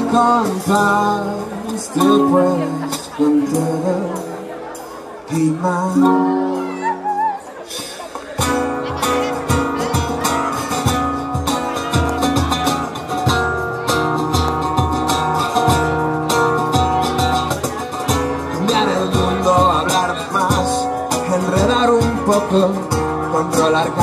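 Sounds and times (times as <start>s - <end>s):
acoustic guitar strumming: 0.0s - 24.0s
cajon and cymbal beat: 0.0s - 24.0s.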